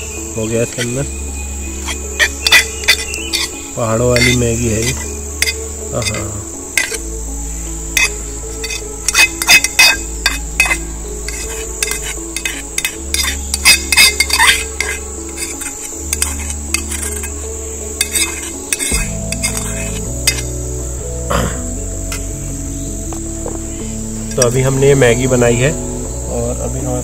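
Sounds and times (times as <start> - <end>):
background music with low notes: 0.0 - 27.0
metal utensil clinking on pot: 1.8 - 3.6, 4.2 - 7.0, 8.0 - 17.4, 18.0 - 20.5.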